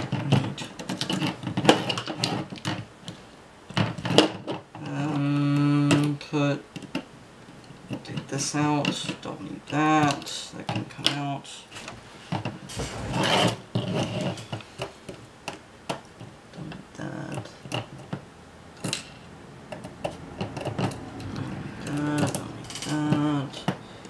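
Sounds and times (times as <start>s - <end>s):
small parts clicking and rattling: 18.8s - 23.8s.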